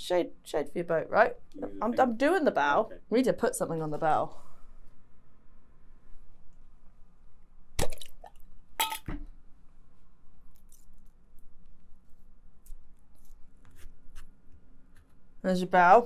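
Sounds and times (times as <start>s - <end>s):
glass jar clinking: 8.8s - 9.1s.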